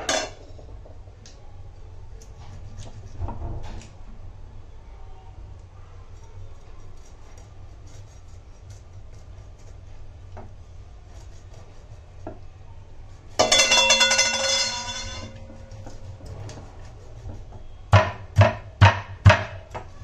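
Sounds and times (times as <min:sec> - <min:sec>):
metal utensil clang: 0:00.0 - 0:00.4, 0:13.4 - 0:15.4.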